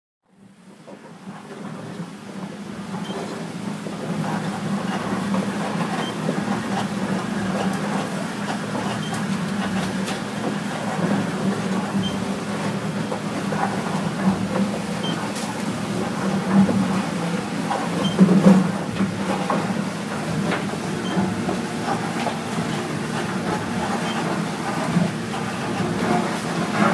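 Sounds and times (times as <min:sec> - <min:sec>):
auger boring machine humming: 0:03.6 - 0:26.9.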